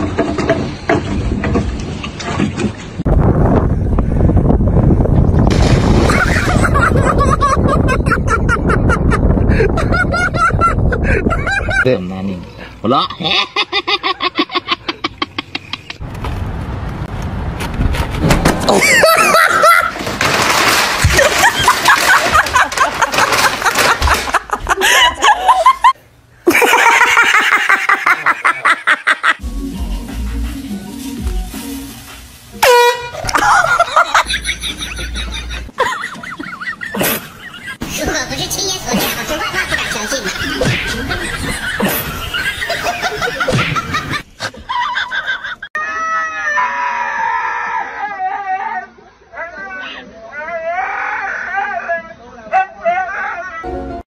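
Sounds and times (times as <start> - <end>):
people giggling: 6.0 - 11.8, 13.0 - 16.0, 18.7 - 20.0, 21.1 - 29.4, 33.2 - 37.8, 38.9 - 45.7
person laughing: 6.0 - 11.9, 13.0 - 16.0, 18.7 - 20.1, 21.1 - 29.4, 33.2 - 37.8, 38.9 - 45.7
dog howling and yowling: 45.8 - 49.0.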